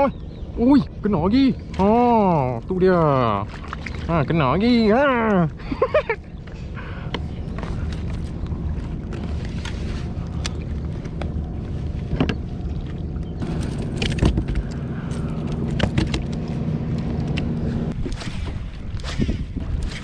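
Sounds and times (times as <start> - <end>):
wind on microphone: 13.4 - 20.0.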